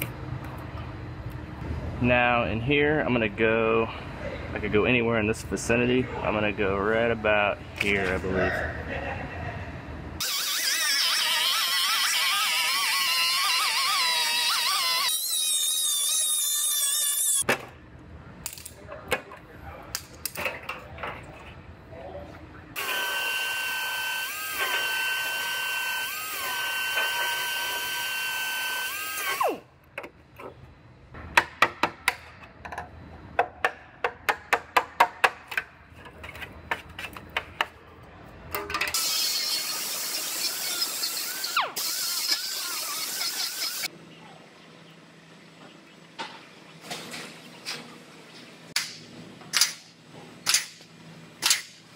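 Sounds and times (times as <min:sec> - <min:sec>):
power tool cutting sheet metal: 0:10.2 - 0:17.4, 0:22.8 - 0:29.6, 0:38.9 - 0:43.9
sharp metal taps and clicks: 0:48.8 - 0:51.8.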